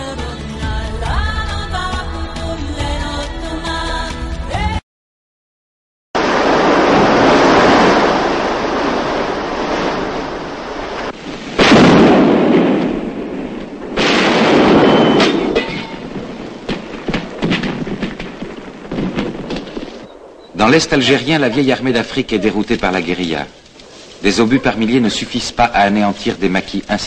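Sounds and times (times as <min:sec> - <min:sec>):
artillery shells exploding: 0:06.2 - 0:27.0
sharp cracks: 0:06.4 - 0:27.0.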